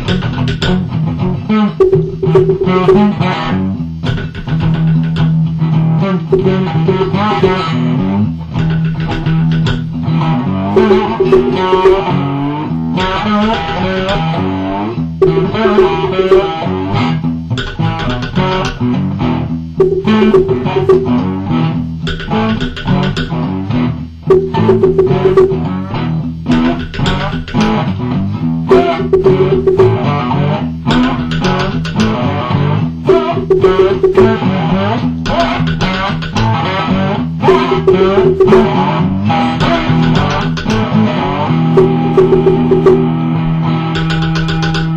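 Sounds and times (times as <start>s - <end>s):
plucked guitar notes: 0.0s - 5.7s, 6.3s - 19.0s, 19.8s - 23.7s, 24.3s - 27.9s, 28.7s - 44.7s
log drum strikes: 1.8s - 3.2s, 10.8s - 12.2s, 15.2s - 16.6s, 19.8s - 21.3s, 24.3s - 25.7s, 28.7s - 30.1s, 33.1s - 34.5s, 37.5s - 38.8s, 41.8s - 43.1s.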